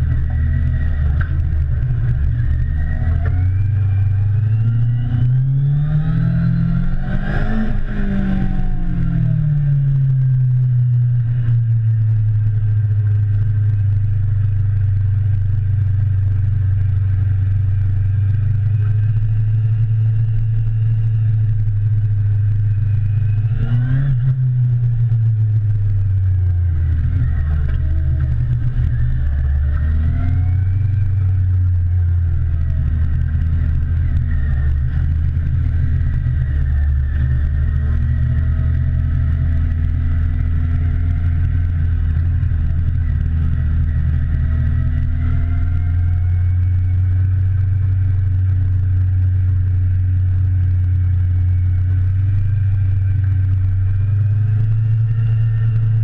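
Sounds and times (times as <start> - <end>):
motorcycle engine running: 0.0 - 56.0.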